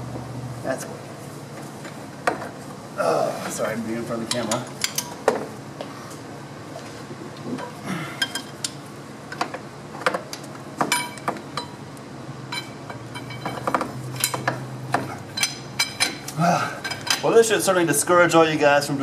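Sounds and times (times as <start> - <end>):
wrench clinking on bolts: 10.9 - 11.8, 12.5 - 14.6, 15.3 - 17.4.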